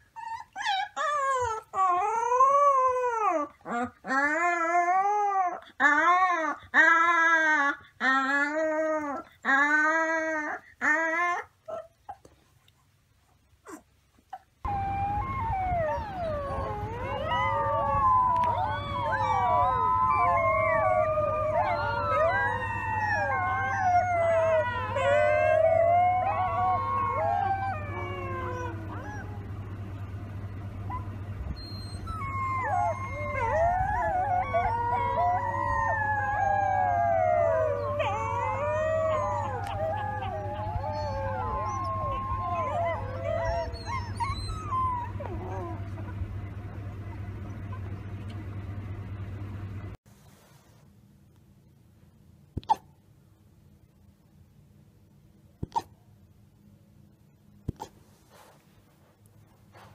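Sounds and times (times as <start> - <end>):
puppy howling: 0.2 - 11.9, 14.6 - 29.7, 30.9 - 46.2
steady low hum: 12.6 - 59.9.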